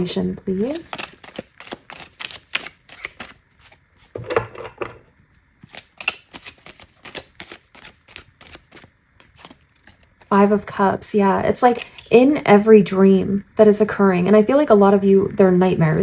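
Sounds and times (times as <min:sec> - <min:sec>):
cards being shuffled: 0:00.6 - 0:04.2, 0:05.6 - 0:10.3.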